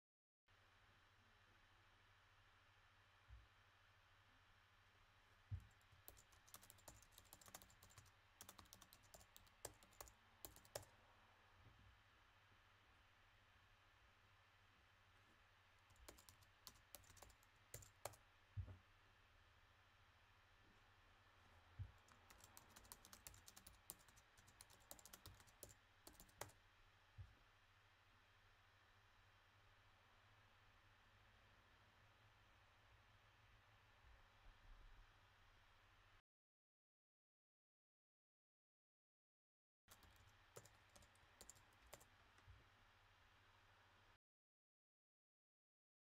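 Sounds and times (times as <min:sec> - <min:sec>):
keyboard typing: 0:05.6 - 0:10.9, 0:15.9 - 0:18.2, 0:21.9 - 0:26.6, 0:39.9 - 0:42.4.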